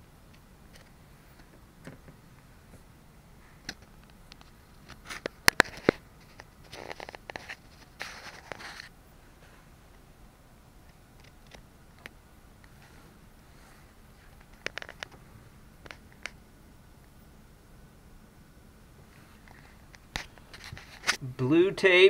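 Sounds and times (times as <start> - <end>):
rustling: 0.7 - 10.0, 19.0 - 21.2.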